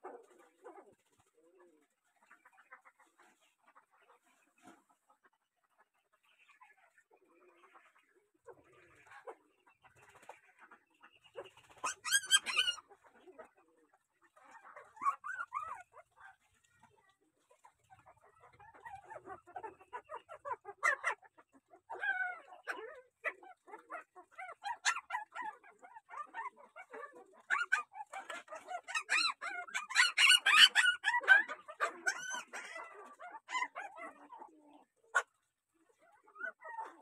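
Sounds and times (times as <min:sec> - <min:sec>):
puppy whining and yelping: 0:11.7 - 0:12.9, 0:14.7 - 0:16.0, 0:18.4 - 0:34.5, 0:36.1 - 0:37.0.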